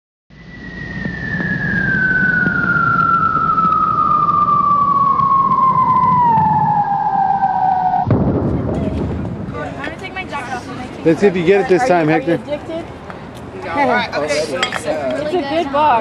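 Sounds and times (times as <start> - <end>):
synthesized tone gliding downward: 0.3 - 8.4
low rumble: 0.3 - 10.2.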